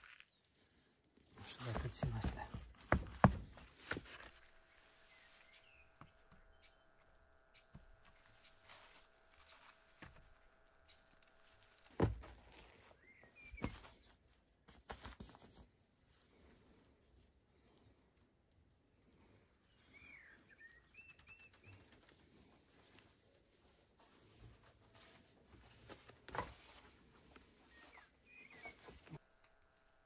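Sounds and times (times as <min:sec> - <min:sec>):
soft thuds and knocks: 0:01.8 - 0:04.3, 0:11.9 - 0:12.6
faint bird chirps: 0:19.6 - 0:22.2, 0:27.6 - 0:29.2.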